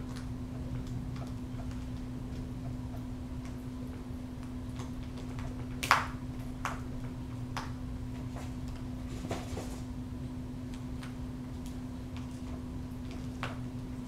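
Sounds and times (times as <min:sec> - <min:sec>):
falcon beak tearing meat: 0:00.0 - 0:07.8.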